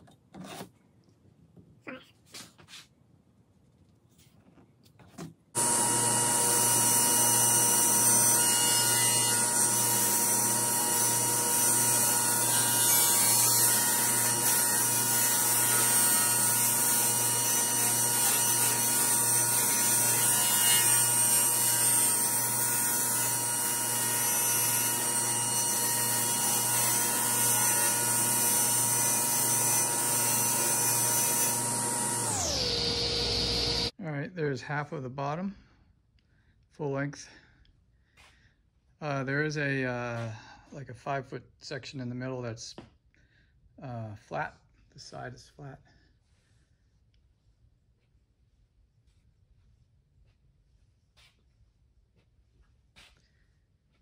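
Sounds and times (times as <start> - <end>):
table saw motor whine: 5.6 - 33.9.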